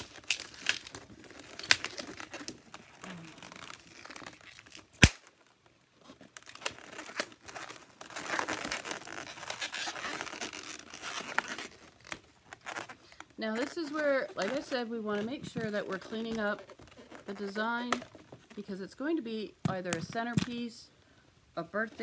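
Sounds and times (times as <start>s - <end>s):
balloon snapping: 4.8s - 5.3s.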